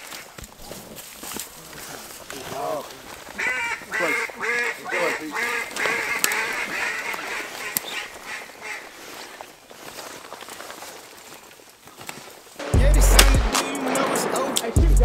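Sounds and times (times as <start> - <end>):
duck quacking: 3.4 - 9.2.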